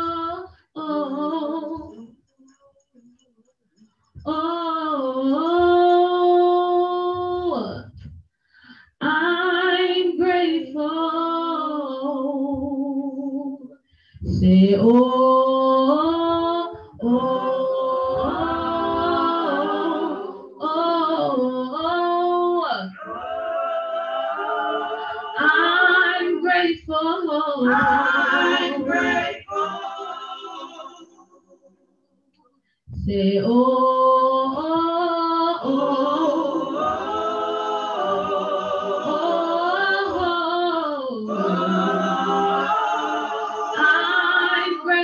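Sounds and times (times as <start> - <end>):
woman singing gospel: 0.0 - 2.1, 4.2 - 8.1, 14.3 - 23.0, 25.3 - 30.9, 33.0 - 37.0, 39.0 - 42.6.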